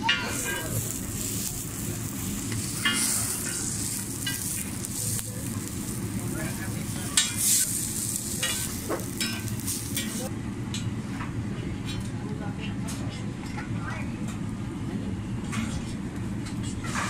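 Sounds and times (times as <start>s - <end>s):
food sizzling on griddle: 0.0s - 10.3s
metal spatula scraping griddle: 0.0s - 10.3s.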